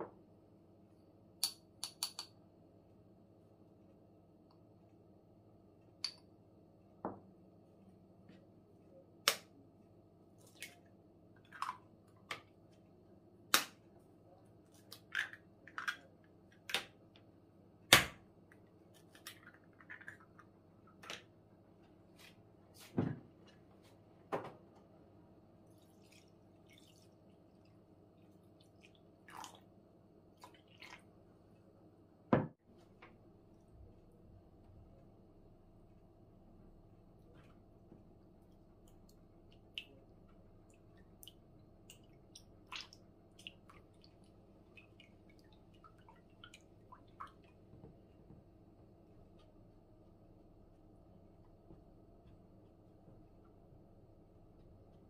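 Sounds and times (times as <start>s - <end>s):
faint steady hum: 0.0s - 55.0s
eggs cracking and tableware clicks: 1.4s - 2.4s.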